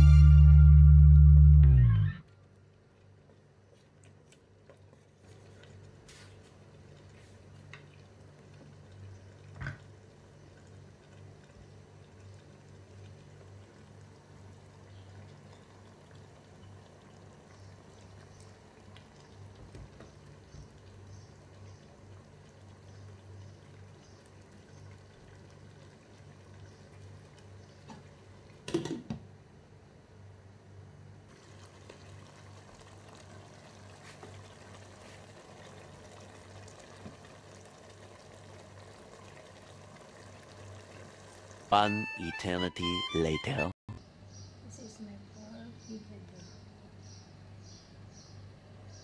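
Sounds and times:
low hum: 0:00.0 - 0:02.4
stew bubbling: 0:02.5 - 0:29.0, 0:31.3 - 0:42.0.

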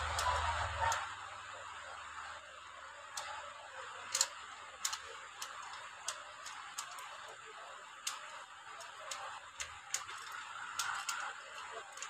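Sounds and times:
screwdriver clicks: 0:08.0 - 0:12.0.

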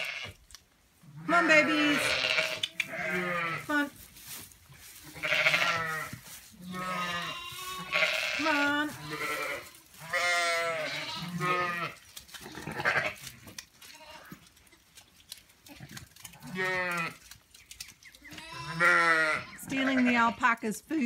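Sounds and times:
sheep bleating: 0:00.0 - 0:00.4, 0:01.2 - 0:03.9, 0:05.0 - 0:14.4, 0:16.4 - 0:17.2, 0:18.3 - 0:20.5.

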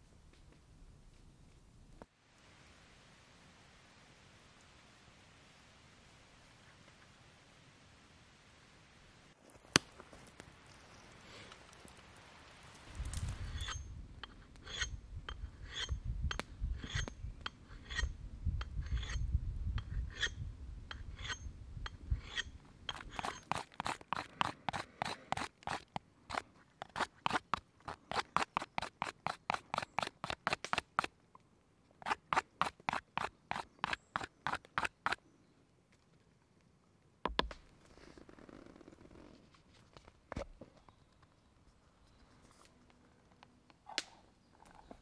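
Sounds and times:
knife scraping wooden branch: 0:13.3 - 0:31.1, 0:32.0 - 0:35.2.

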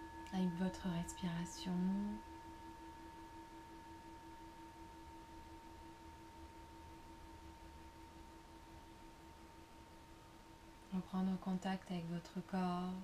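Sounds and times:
singing bowl ringing: 0:00.0 - 0:11.4.

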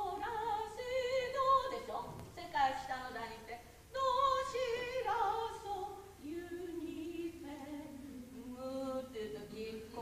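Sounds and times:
woman singing slow melody: 0:00.0 - 0:10.0.

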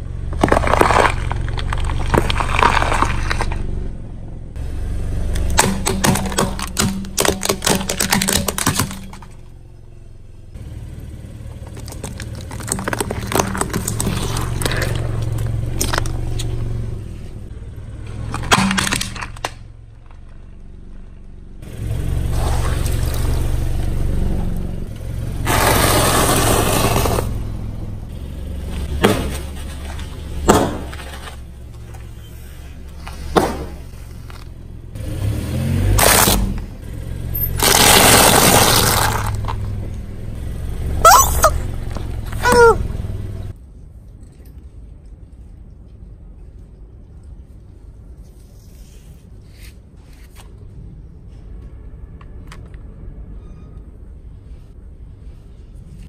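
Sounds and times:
car engine humming: 0:00.0 - 0:43.6
objects crunching and cracking: 0:00.2 - 0:03.7, 0:05.4 - 0:09.4, 0:11.6 - 0:16.6, 0:37.6 - 0:39.7.

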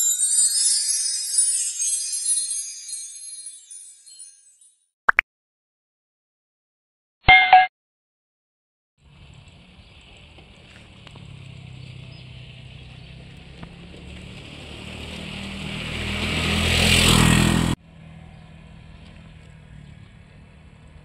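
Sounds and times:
outdoor background noise: 0:09.0 - 0:21.0
vehicle passing close: 0:09.0 - 0:21.0.

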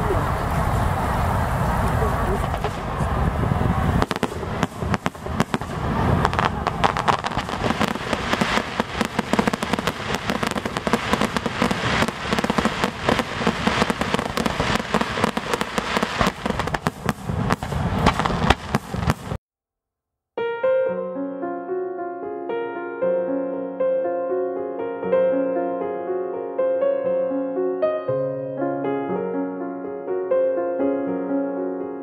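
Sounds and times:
continuous rumble: 0:00.0 - 0:19.4
fireworks shells bursting: 0:04.0 - 0:19.4.

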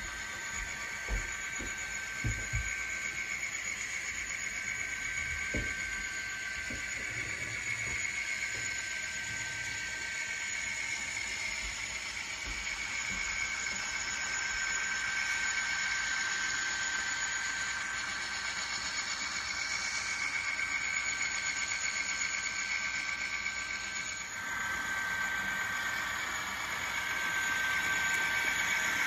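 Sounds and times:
model train rolling on track: 0:00.0 - 0:29.0.

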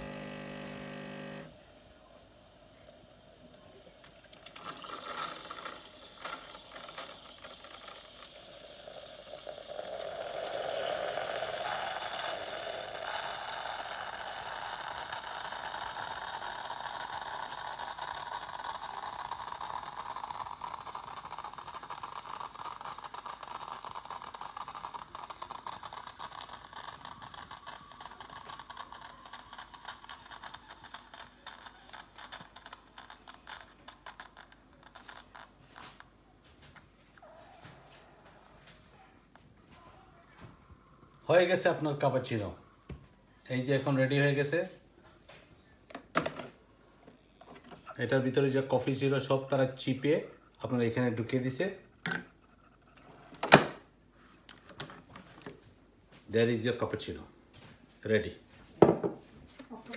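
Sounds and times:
coffee machine pump buzzing: 0:00.0 - 0:02.2, 0:02.8 - 0:36.1.

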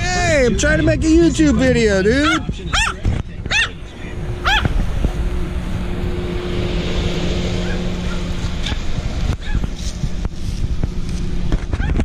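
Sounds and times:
low hum and rushing noise: 0:00.0 - 0:12.0
small dog yipping: 0:02.2 - 0:03.8, 0:04.4 - 0:04.7, 0:09.4 - 0:09.7, 0:11.7 - 0:12.0.

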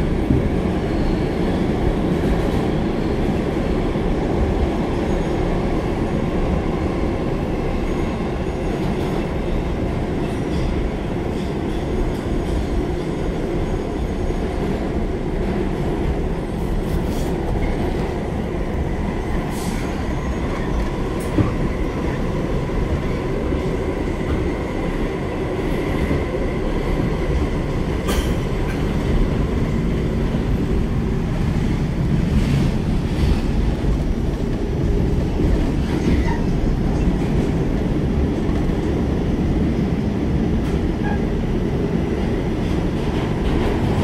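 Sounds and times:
wheels rumbling on rails: 0:00.0 - 0:44.0.

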